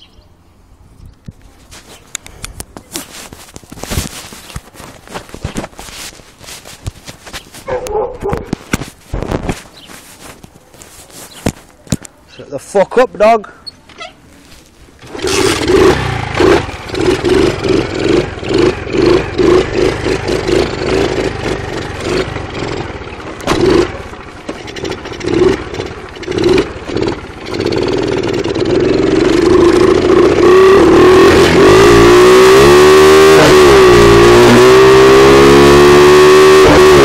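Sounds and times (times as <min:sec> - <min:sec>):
dirt bike engine revving: 0:15.0 - 0:37.0.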